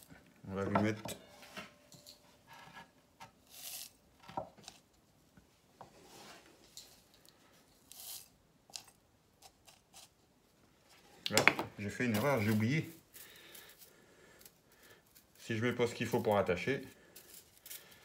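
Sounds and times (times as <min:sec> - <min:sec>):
gritty soil rustling in pot: 0:11.8 - 0:13.2, 0:15.3 - 0:18.0.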